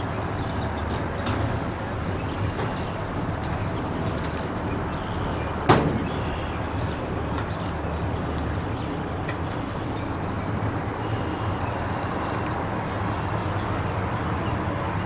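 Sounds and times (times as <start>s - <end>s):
low outdoor rumble: 0.0s - 15.0s
sharp bang: 5.7s - 6.5s.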